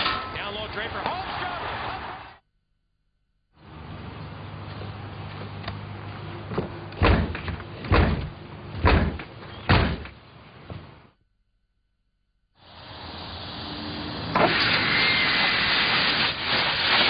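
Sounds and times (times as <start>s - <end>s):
fist pounding on door: 7.0s - 10.1s.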